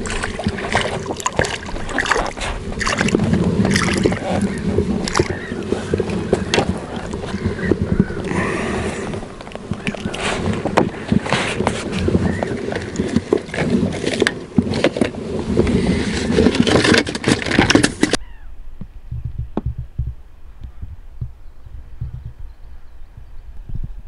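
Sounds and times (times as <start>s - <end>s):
gear rustling with clicks and knocks: 9.1s - 18.2s
low thumps: 18.6s - 24.0s.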